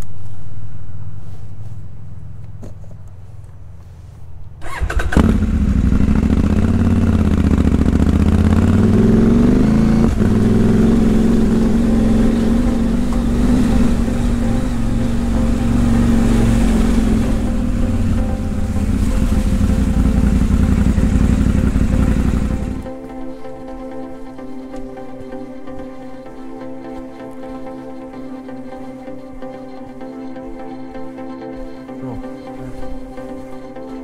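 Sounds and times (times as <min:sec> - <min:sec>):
motorcycle engine revving: 0:00.9 - 0:23.0
low deep tone: 0:05.7 - 0:23.0.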